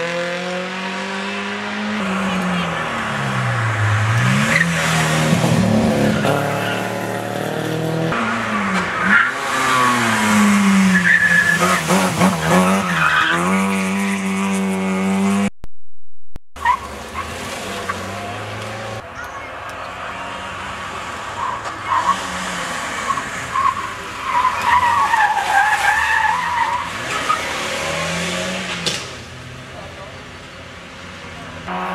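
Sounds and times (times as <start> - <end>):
rally car engines revving: 0.0 - 15.5, 16.6 - 31.9.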